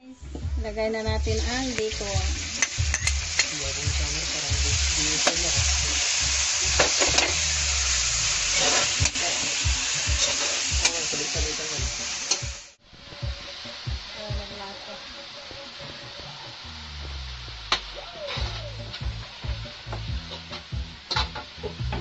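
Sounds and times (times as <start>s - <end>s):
bacon sizzling in a wok: 1.1s - 22.0s
spatula scraping pan: 8.5s - 9.5s.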